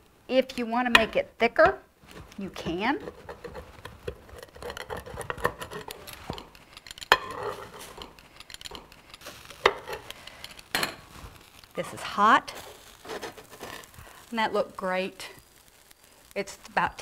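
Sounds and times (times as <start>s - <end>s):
pizza cutter scraping on stone: 2.7s - 10.1s
pizza cutter rolling through crust: 2.8s - 10.1s, 12.6s - 14.0s.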